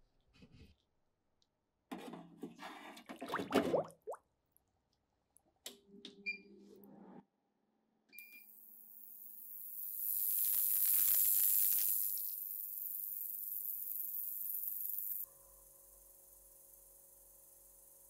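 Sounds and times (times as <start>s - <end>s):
hiss of cavitating liquid: 9.3s - 15.2s.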